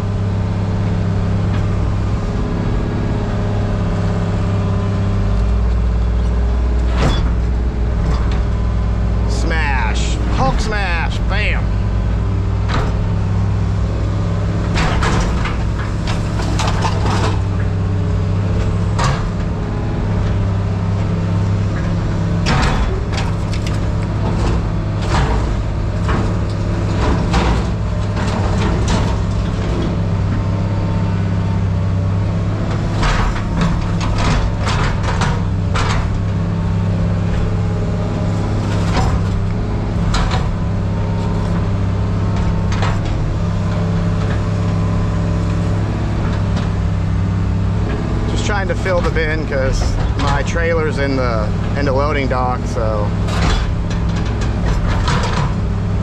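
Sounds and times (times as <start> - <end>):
heavy machine engine running: 0.0 - 56.0
metal scrap clanking and rattling: 14.6 - 19.6, 21.7 - 30.6, 31.2 - 56.0.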